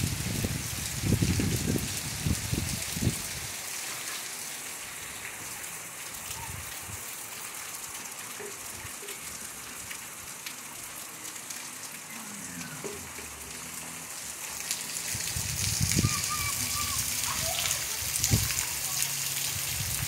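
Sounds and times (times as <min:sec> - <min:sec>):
rain hissing on roofs and street: 0:00.0 - 0:20.0.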